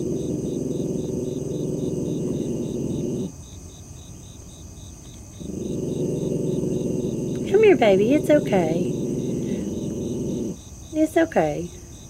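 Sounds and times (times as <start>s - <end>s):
dog growling low: 0.0s - 3.3s, 5.4s - 10.6s
crickets chirping: 0.0s - 12.0s.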